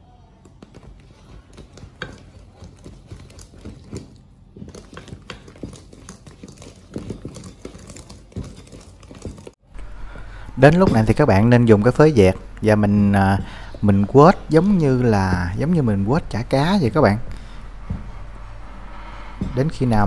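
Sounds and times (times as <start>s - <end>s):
whisk scraping metal bowl: 0.7s - 9.6s.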